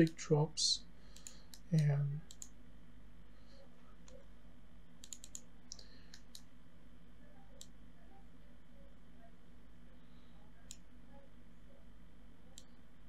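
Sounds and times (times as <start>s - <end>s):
faint low hum: 0.0s - 13.0s
computer mouse clicks: 1.1s - 1.7s, 2.3s - 2.6s, 5.0s - 6.5s, 10.6s - 10.8s, 12.6s - 12.8s.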